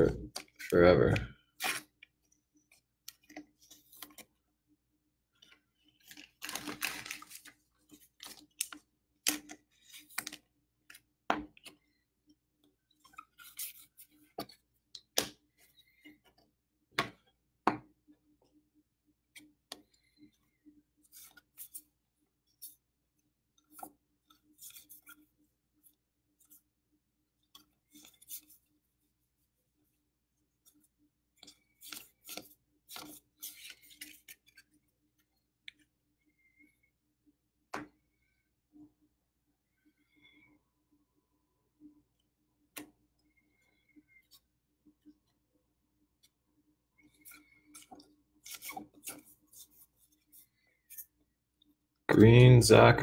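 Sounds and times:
wrapper crinkling: 6.1s - 7.5s.

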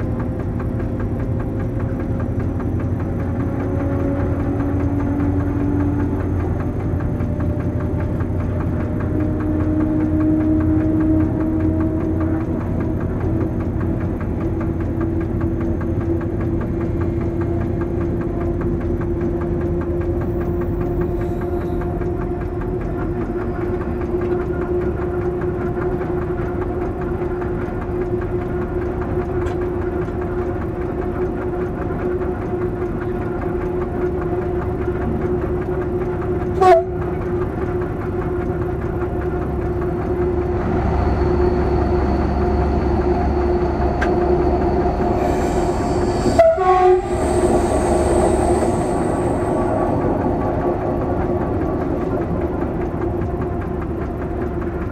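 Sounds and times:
locomotive diesel engine running: 0.0s - 54.9s
wheels rumbling on rails: 0.0s - 54.9s.

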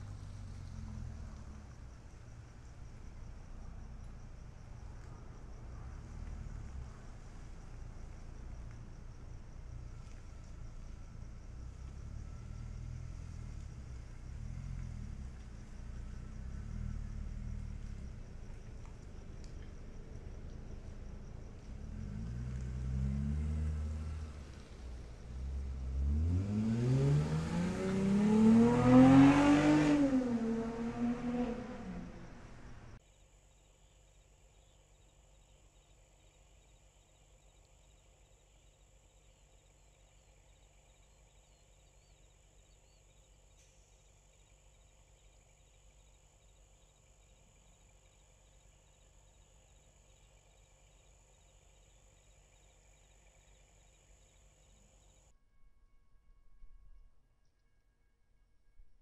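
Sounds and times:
car engine revving: 0.0s - 3.3s, 9.6s - 33.0s.

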